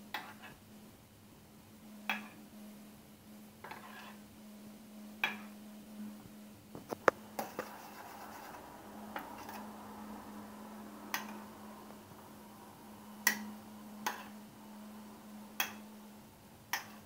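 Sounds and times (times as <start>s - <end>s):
low steady hum: 0.0s - 17.0s
metal spoon scraping a pot: 3.6s - 4.2s.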